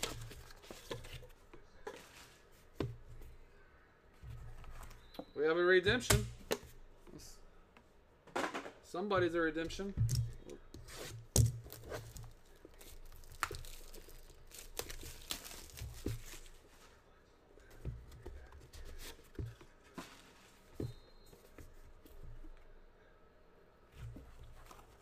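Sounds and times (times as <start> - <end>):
plastic wrap tearing and crinkling: 11.0 - 16.6.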